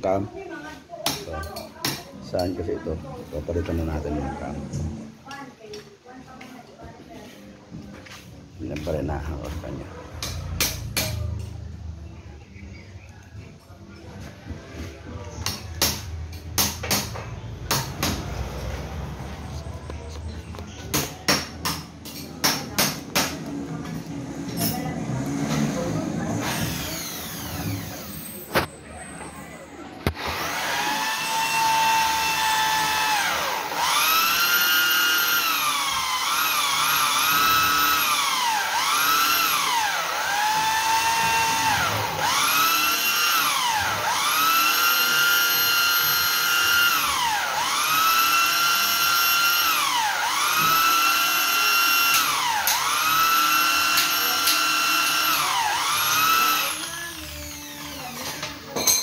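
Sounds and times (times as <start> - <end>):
power drill motor whining: 25.7 - 28.6, 30.0 - 58.4.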